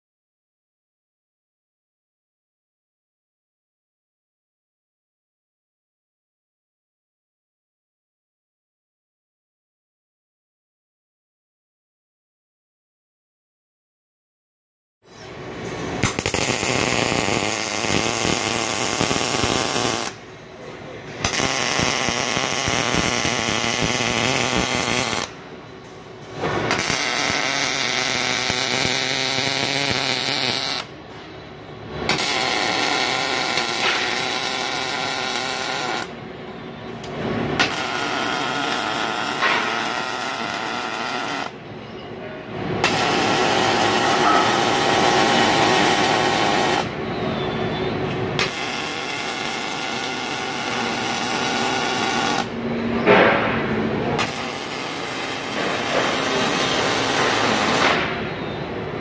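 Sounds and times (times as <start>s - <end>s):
welding arc: 15.8s - 20.2s, 21.2s - 25.4s, 26.3s - 30.9s, 32.0s - 36.1s, 37.0s - 41.6s, 42.8s - 47.0s, 48.3s - 52.6s, 54.2s - 58.2s.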